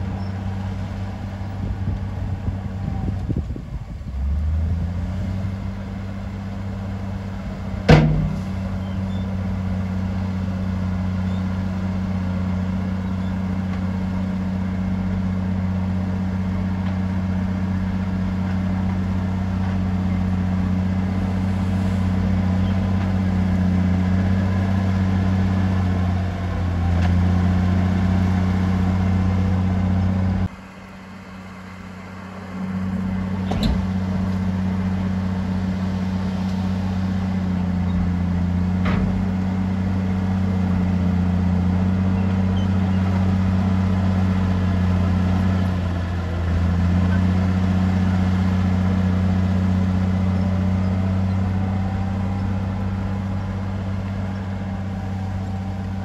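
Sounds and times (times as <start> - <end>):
diesel engine droning: 0.0 - 56.0
sharp metallic knocks: 7.9 - 8.7.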